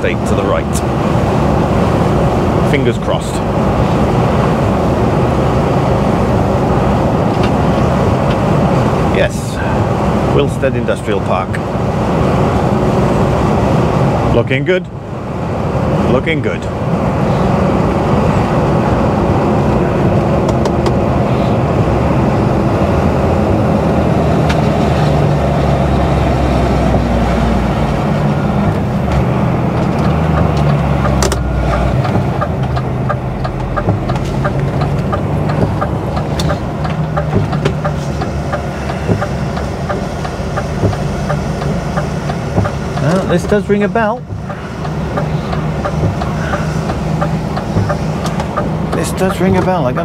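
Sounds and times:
diesel truck engine in cab: 0:00.0 - 0:50.0
road noise: 0:00.0 - 0:50.0
light regular ticking: 0:29.6 - 0:50.0.

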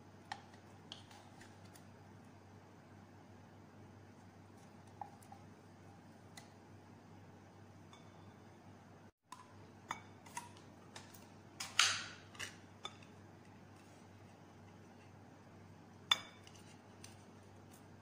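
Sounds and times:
spatula clinking glass bowl: 0:07.9 - 0:08.4, 0:16.1 - 0:16.6.

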